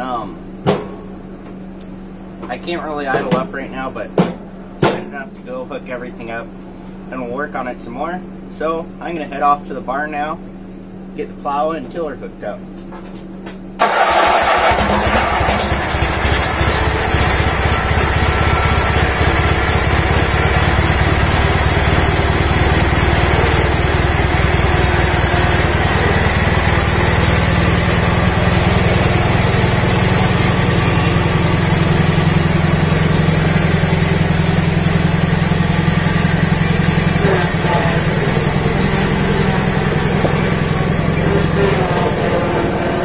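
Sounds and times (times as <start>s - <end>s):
garden tractor engine running: 13.8s - 43.0s.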